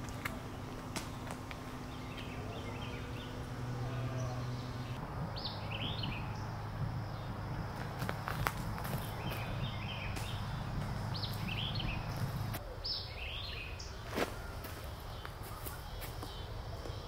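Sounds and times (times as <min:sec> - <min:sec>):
steady low rumble: 0:00.0 - 0:12.8
small birds chirping: 0:00.0 - 0:17.0.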